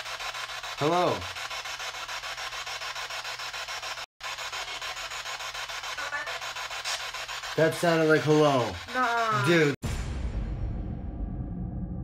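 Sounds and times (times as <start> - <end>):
pulsing radio static hiss: 0.0 - 9.8.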